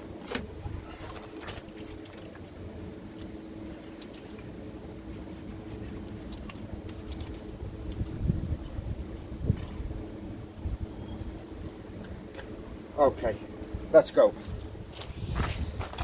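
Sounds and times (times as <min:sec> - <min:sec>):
steady low hum: 0:00.0 - 0:16.0
soapy hands rubbing together: 0:03.6 - 0:09.8.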